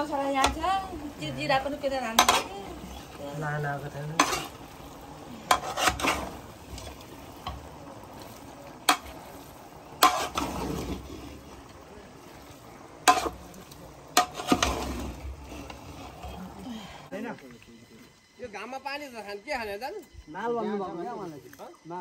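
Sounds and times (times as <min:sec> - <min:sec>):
ladle stirring meat in pot: 0:00.0 - 0:16.6.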